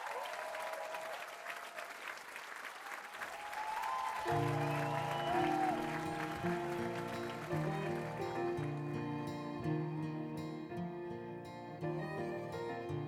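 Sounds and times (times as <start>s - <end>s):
audience applauding and cheering: 0.0s - 10.2s
instrumental music with held chords: 5.6s - 13.0s.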